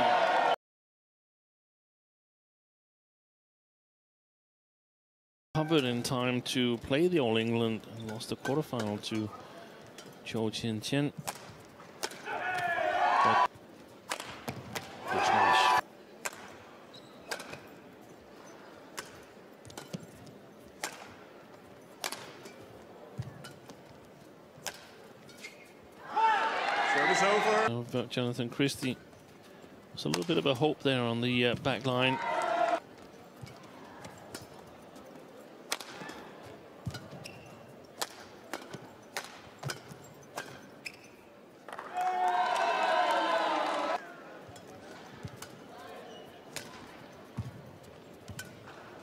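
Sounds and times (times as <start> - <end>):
rackets hitting shuttlecock: 11.2 - 12.7, 14.0 - 15.0, 16.2 - 16.6, 17.2 - 17.7, 18.9 - 20.1, 20.8 - 21.2, 22.0 - 22.6, 24.6 - 25.0, 35.7 - 37.4, 38.0 - 41.0, 46.5 - 47.6
shoe squeaks on court floor: 16.9 - 17.4, 25.3 - 25.8, 36.8 - 38.0, 38.8 - 41.4.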